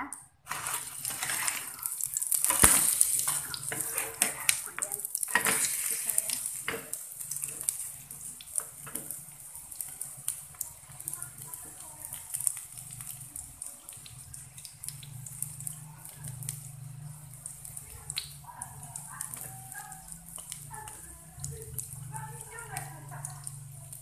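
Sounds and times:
food sizzling in frying pan: 0.4s - 24.0s
spatula scraping pan: 0.5s - 13.1s.

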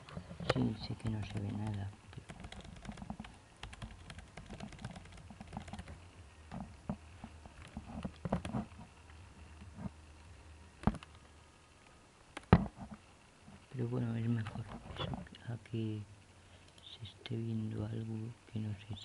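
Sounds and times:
faint low hum: 0.0s - 19.0s
laptop keys clicking: 0.5s - 6.0s, 7.6s - 8.7s, 10.8s - 11.2s.

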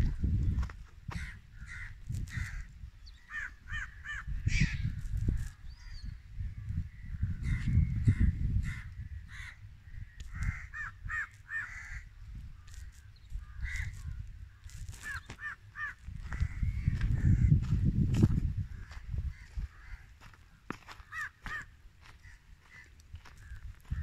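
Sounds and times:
wind rumbling on microphone: 0.0s - 24.0s
crows cawing: 1.1s - 4.9s, 6.9s - 17.6s, 18.7s - 24.0s.

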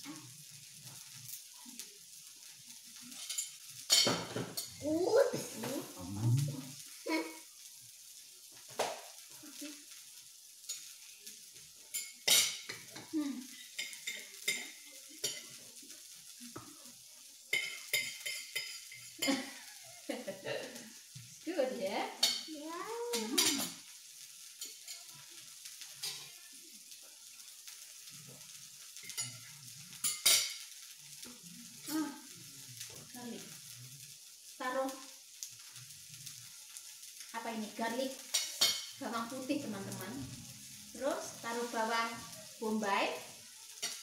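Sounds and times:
meat sizzling on grill: 0.0s - 44.0s
person humming: 5.5s - 6.8s.

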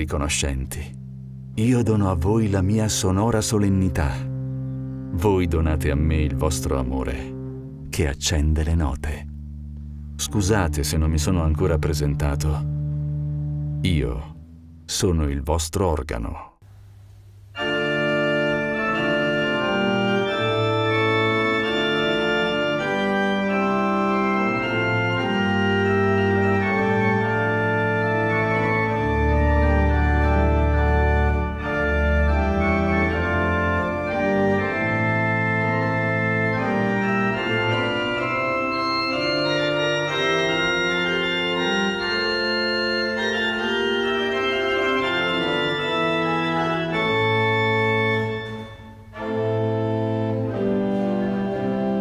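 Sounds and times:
pipe organ playing chords: 0.0s - 15.4s, 17.2s - 52.0s
deep organ pedal notes: 0.0s - 16.5s, 17.2s - 52.0s.

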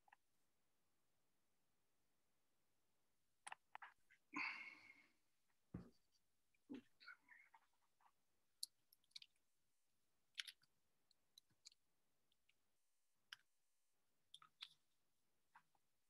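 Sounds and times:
faint irregular clicks: 5.9s - 9.6s, 10.2s - 13.6s, 14.2s - 15.9s.

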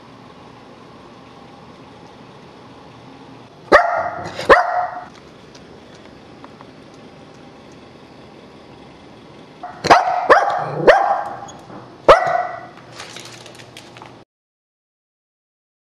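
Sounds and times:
dog barking: 3.7s - 5.1s, 9.6s - 11.5s, 12.1s - 12.8s.

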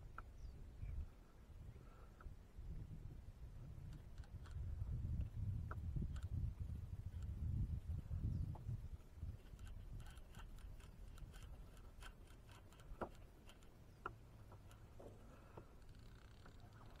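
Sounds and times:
faint small clicks: 3.8s - 7.4s, 9.3s - 17.0s.

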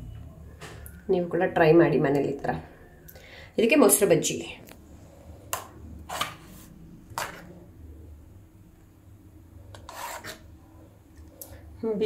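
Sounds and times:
metal spoon scraping on plate: 9.7s - 10.5s.

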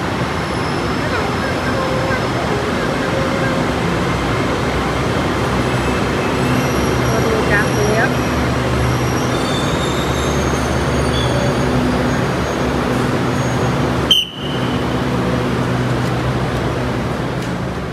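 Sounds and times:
train rumble: 0.0s - 17.9s.

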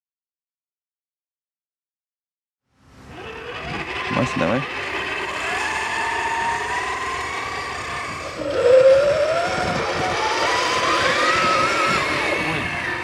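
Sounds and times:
louder climbing whine: 2.7s - 13.0s
electric motor and gear whine: 3.0s - 13.0s.

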